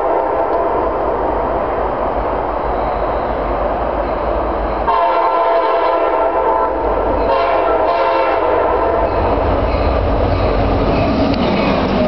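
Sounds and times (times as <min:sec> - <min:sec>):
low train rumble: 0:00.0 - 0:12.0
locomotive air horn: 0:04.9 - 0:09.0.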